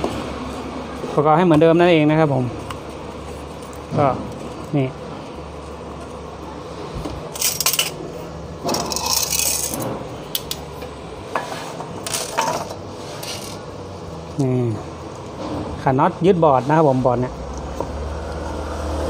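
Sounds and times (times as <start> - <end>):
metal parts clinking and rattling: 7.3 - 8.0, 8.7 - 10.6, 12.0 - 13.6.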